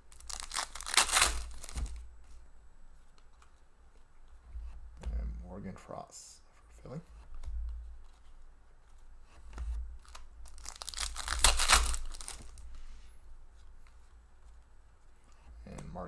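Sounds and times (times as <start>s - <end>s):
wrapper tearing open: 0.1s - 2.0s, 10.0s - 12.6s.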